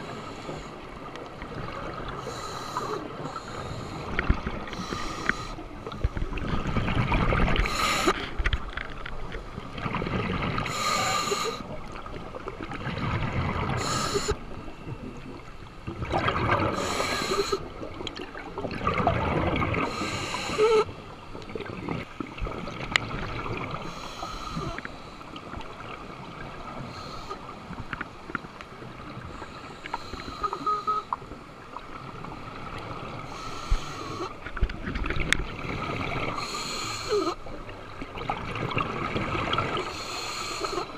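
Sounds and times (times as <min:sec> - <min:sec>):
gurgling water: 0:00.0 - 0:40.9
diver breathing through regulator: 0:02.2 - 0:06.5, 0:07.6 - 0:08.4, 0:10.6 - 0:11.7, 0:13.7 - 0:14.4, 0:16.7 - 0:17.7, 0:19.8 - 0:20.9, 0:23.8 - 0:25.3, 0:29.3 - 0:31.2, 0:33.2 - 0:34.4, 0:36.3 - 0:37.4, 0:39.7 - 0:40.9.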